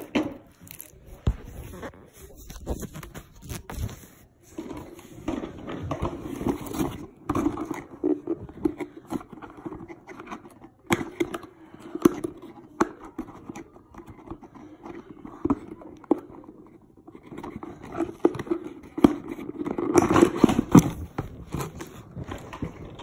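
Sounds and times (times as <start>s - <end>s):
packaging rustling: 0.0s - 5.1s.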